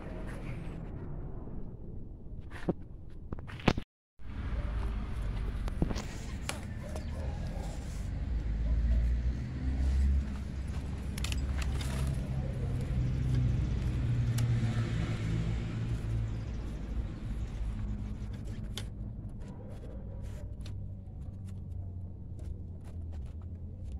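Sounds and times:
low rumble: 0.0s - 3.4s.

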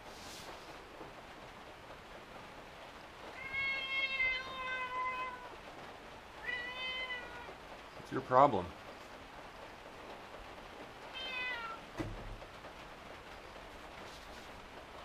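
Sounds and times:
cat meowing: 3.3s - 5.6s, 6.4s - 7.6s, 11.1s - 11.9s.

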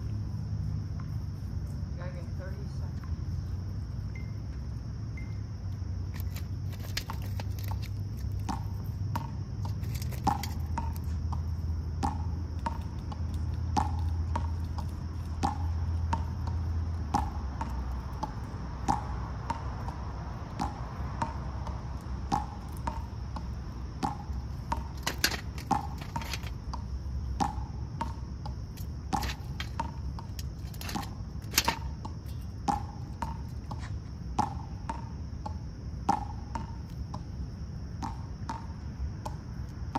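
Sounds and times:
crickets droning: 0.0s - 39.9s
squirrels cracking peanut shells: 6.1s - 9.0s, 9.6s - 11.1s.

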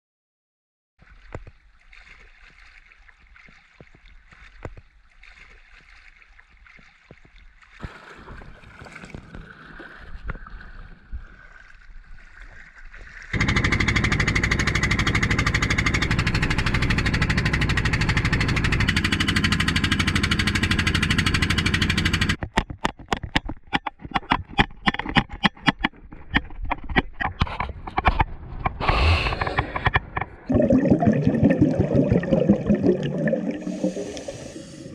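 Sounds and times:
boat engine running: 13.3s - 22.4s.

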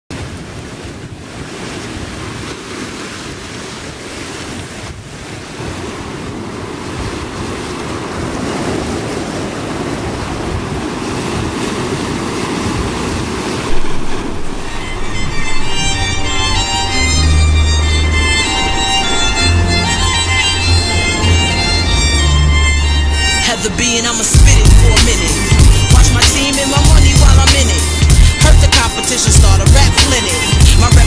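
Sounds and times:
sea surf washing over rocks: 0.1s - 20.4s, 23.4s - 31.0s
wind: 0.1s - 31.0s
loud wave crash: 13.6s - 30.7s.

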